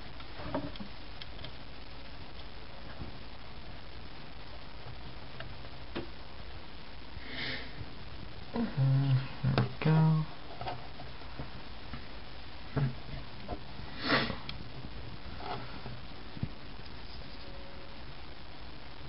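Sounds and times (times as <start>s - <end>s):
faint clicks of small parts: 0.2s - 1.6s
breath noise: 7.1s - 9.4s, 13.8s - 14.5s
person sniffing: 7.2s - 7.8s, 13.9s - 14.4s.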